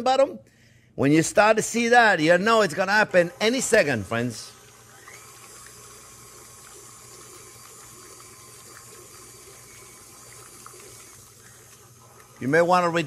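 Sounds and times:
stand mixer motor hum: 2.6 - 13.0.

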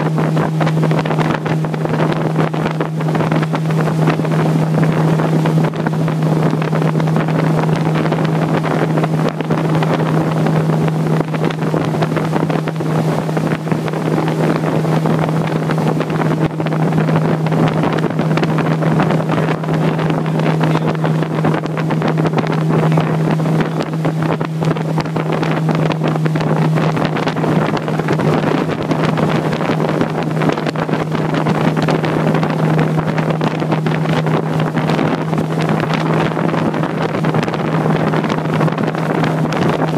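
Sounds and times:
motorboat engine humming: 0.0 - 39.9
wind noise on microphone: 0.0 - 39.9.

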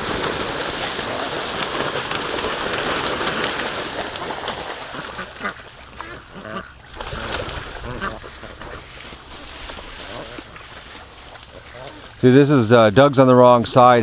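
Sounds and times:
ducks splashing through water: 0.0 - 13.2
duck quacks: 4.8 - 9.4.

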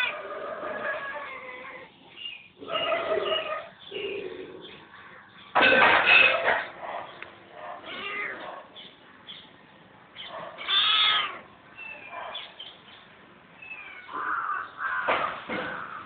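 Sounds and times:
cats meowing: 0.0 - 2.0, 7.8 - 8.7, 10.5 - 12.1, 13.6 - 15.2.

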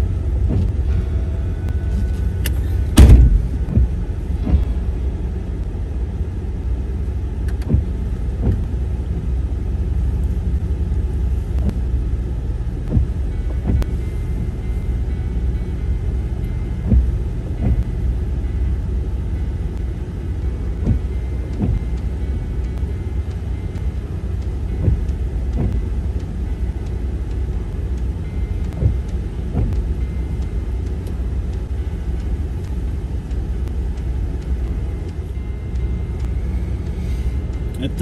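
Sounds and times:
vehicle engine and tyres rumbling: 0.0 - 38.0
vehicle thumping over rocks: 2.9 - 4.7.

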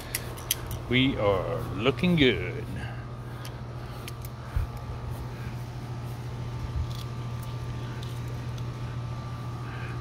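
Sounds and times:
grill tongs clicking: 0.0 - 1.0, 3.4 - 4.9
low mechanical hum: 0.0 - 10.0.

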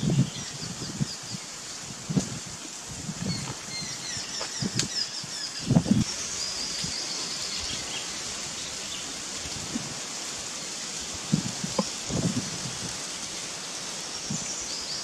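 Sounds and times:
steady high hiss: 0.0 - 15.0
low rustling thumps: 11.2 - 13.0.

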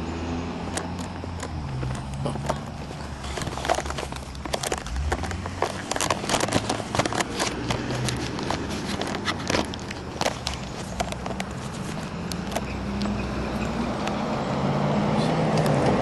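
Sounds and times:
camera handling noise: 0.7 - 12.8
clicks knocks and rustles: 0.7 - 13.2.

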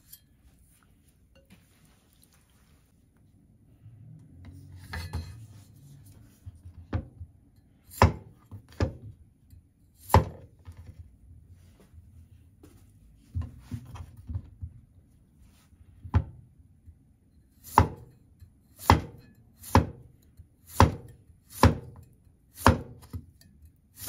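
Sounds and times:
cleaver chopping on wooden board: 8.0 - 9.0, 17.7 - 18.1, 18.8 - 20.0, 20.7 - 22.0, 22.6 - 23.2.

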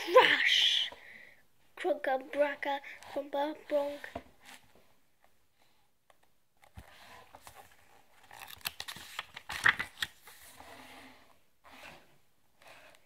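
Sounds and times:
pages flipping: 6.6 - 10.8.

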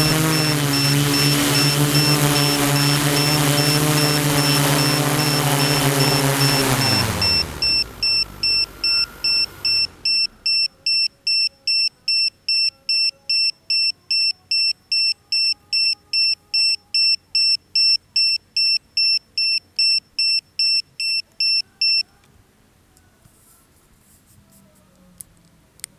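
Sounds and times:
drone motors spinning down: 0.0 - 10.7
high electronic beeping: 0.0 - 22.0.

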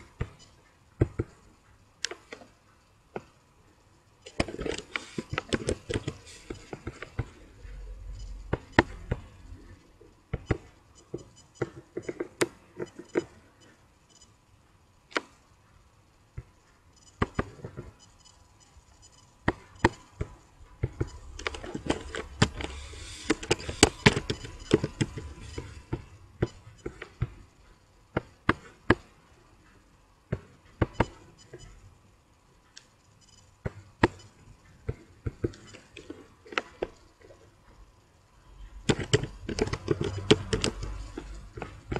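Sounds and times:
keyboard typing: 4.2 - 13.8, 17.0 - 29.1, 38.7 - 41.9
computer mouse clicks: 20.8 - 27.3, 38.8 - 41.9.

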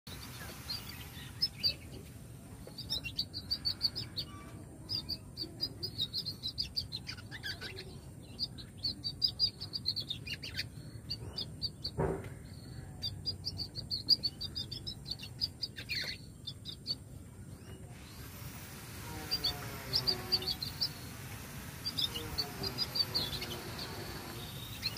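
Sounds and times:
young canary twittering: 2.7 - 18.5, 19.2 - 24.9.

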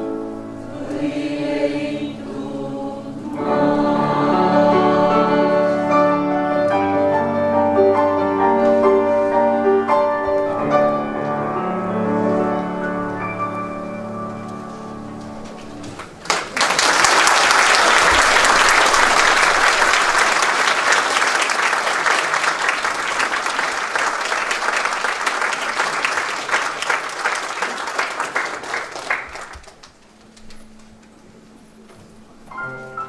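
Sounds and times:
piano playing: 0.0 - 16.2, 30.6 - 33.0
audience applauding: 15.9 - 30.3.

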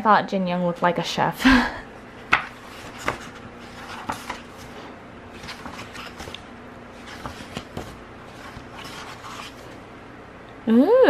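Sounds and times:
paper pages rustling: 2.3 - 9.8.

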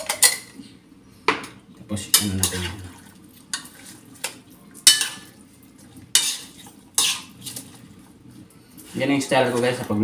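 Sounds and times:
utensil scraping frying pan: 6.0 - 7.8.

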